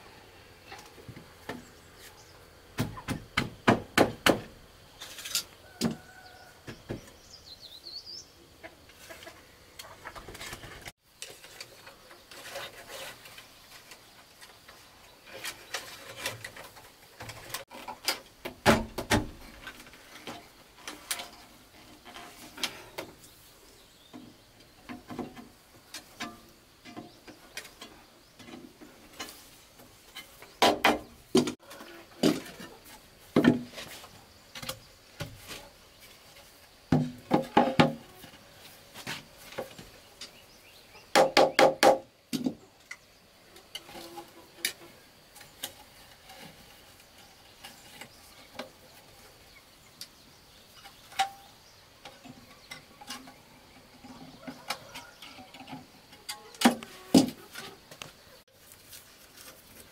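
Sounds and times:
bamboo poles knocked: 0:02.8 - 0:04.5, 0:18.4 - 0:19.4, 0:30.6 - 0:31.6, 0:33.4 - 0:33.8, 0:36.9 - 0:38.0, 0:41.1 - 0:42.6.

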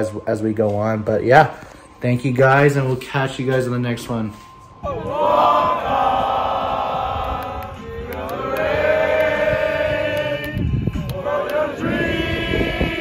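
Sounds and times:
young men chanting in unison: 0:04.9 - 0:13.0.

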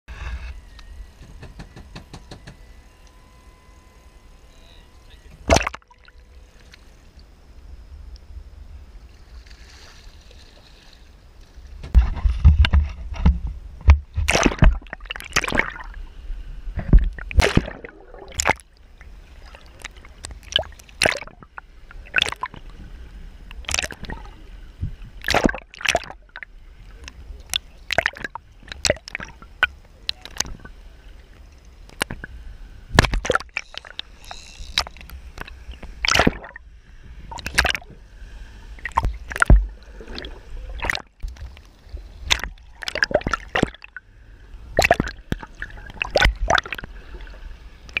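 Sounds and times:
low rumbling: 0:00.1 - 0:48.0
loud splashes and knocks: 0:05.4 - 0:05.8, 0:11.8 - 0:15.8, 0:16.8 - 0:18.6, 0:25.2 - 0:26.2, 0:33.0 - 0:33.9, 0:36.0 - 0:36.6, 0:38.8 - 0:41.2, 0:42.2 - 0:43.9, 0:44.8 - 0:46.9
water sloshing and splashing: 0:05.4 - 0:07.3, 0:09.0 - 0:16.1, 0:16.7 - 0:48.0.

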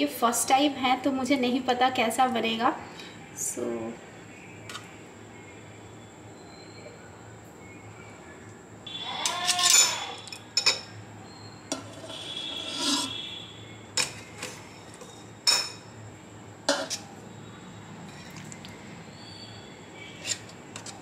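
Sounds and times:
metal tongs scraping basket: 0:09.2 - 0:10.3, 0:11.7 - 0:13.2, 0:20.0 - 0:21.0.

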